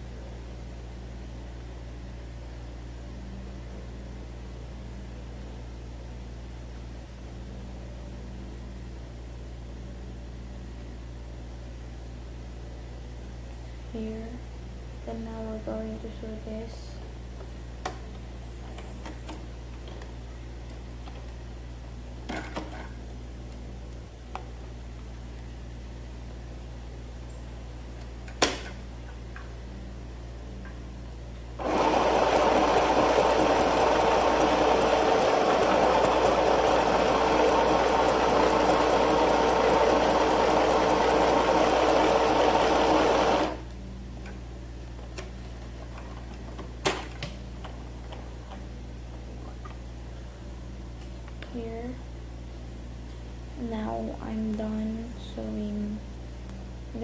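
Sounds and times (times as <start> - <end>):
sewing machine stitching: 31.6 - 43.6.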